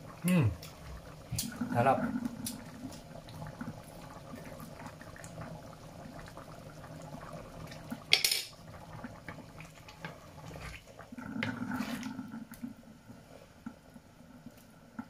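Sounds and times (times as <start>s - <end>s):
curry simmering and bubbling: 0.0s - 15.0s
utensil clattering on pan: 8.1s - 8.5s
wooden spatula stirring sauce: 11.4s - 12.1s.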